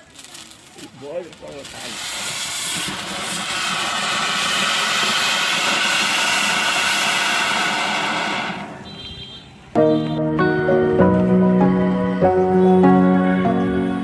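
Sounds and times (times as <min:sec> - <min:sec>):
firework fountain hissing: 0:00.0 - 0:09.3.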